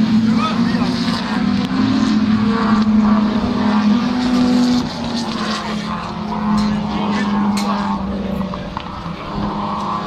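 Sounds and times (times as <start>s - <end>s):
racing car engine at high revs: 0.0s - 10.0s.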